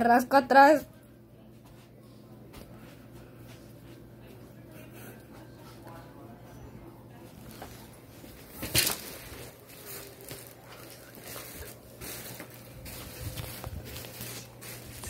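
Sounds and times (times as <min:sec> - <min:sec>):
rustling and scuffing: 0:07.3 - 0:15.0.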